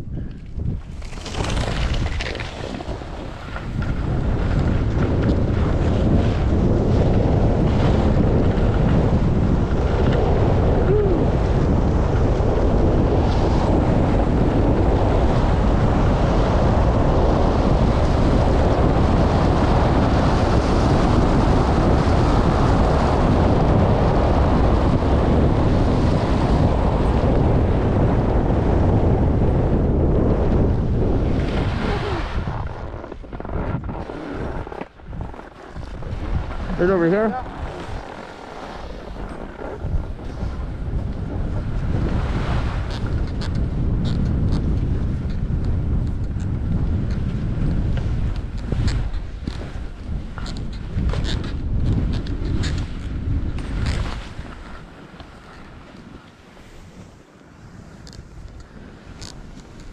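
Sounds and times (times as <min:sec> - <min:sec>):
wind buffeting the microphone: 0:00.0 - 0:59.9.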